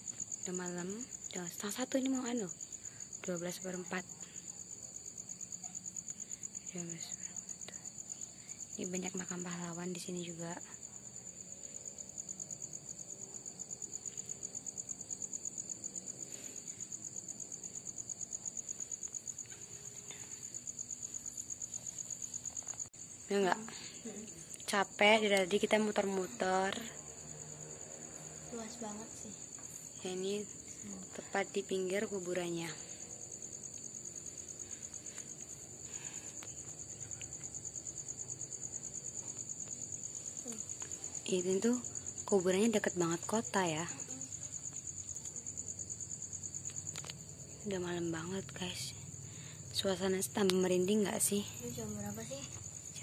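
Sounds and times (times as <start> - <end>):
cricket chirping: 0.0 - 53.0
insect trilling: 10.9 - 48.0.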